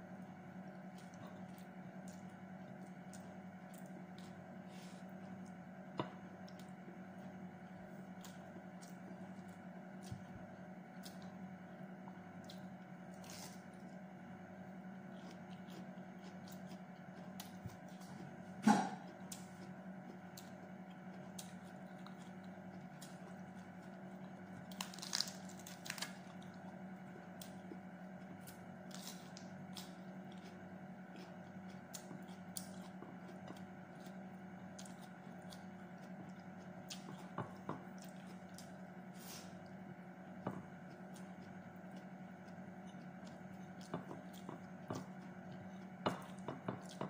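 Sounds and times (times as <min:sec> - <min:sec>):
steady low hum: 0:00.0 - 0:47.0
wet chewing and smacks: 0:15.1 - 0:18.3, 0:19.0 - 0:38.9, 0:39.6 - 0:47.0.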